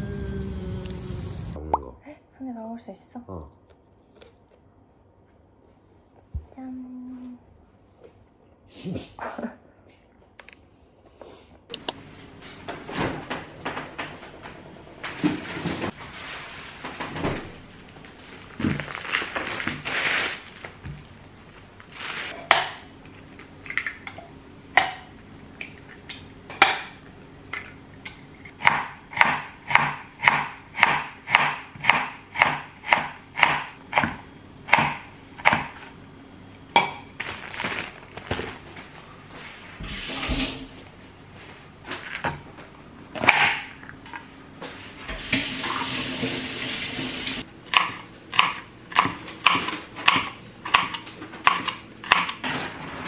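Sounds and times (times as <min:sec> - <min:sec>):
plastic bags crinkling: 0:17.7 - 0:22.4, 0:37.0 - 0:39.0
knife chopping on plastic board: 0:28.6 - 0:35.8, 0:47.7 - 0:52.4
kitchen tap running: 0:45.1 - 0:47.5.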